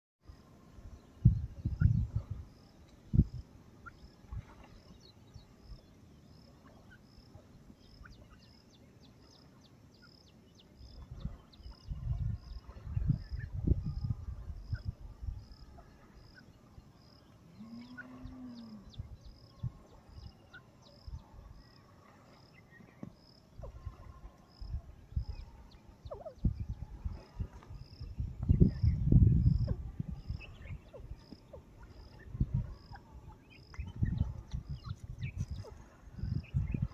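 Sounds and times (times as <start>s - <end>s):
distant cow mooing: 17.5s - 18.9s.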